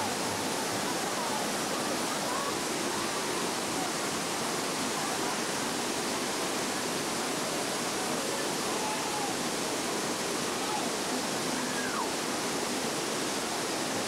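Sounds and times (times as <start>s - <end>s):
white water rushing over rocks: 0.0s - 14.0s.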